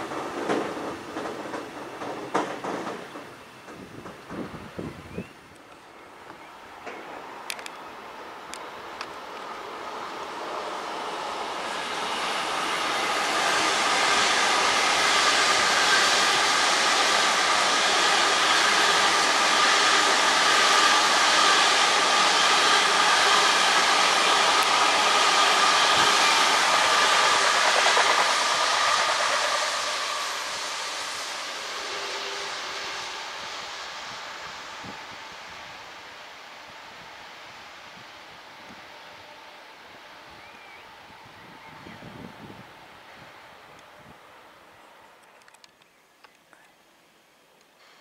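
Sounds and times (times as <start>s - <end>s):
wheels rolling on rail: 0.0s - 33.0s
electric train rolling past: 0.0s - 45.8s.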